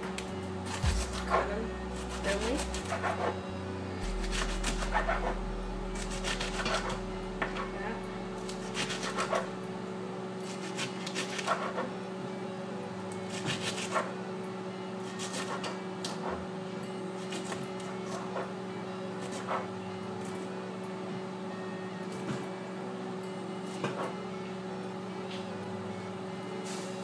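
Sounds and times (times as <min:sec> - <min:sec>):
steady low hum: 0:00.0 - 0:17.2
knife chopping on cutting board: 0:00.8 - 0:03.4.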